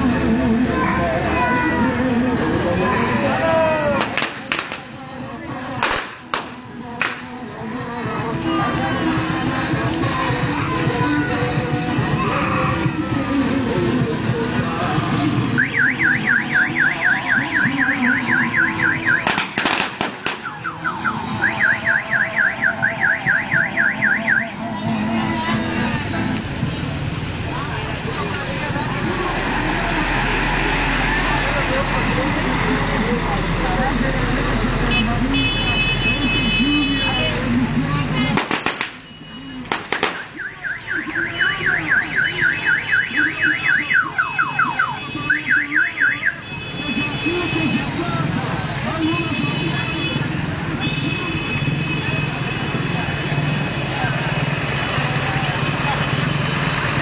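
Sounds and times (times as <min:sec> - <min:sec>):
electronic siren yelping: 0:15.6 - 0:19.3, 0:20.4 - 0:24.5, 0:40.3 - 0:46.4.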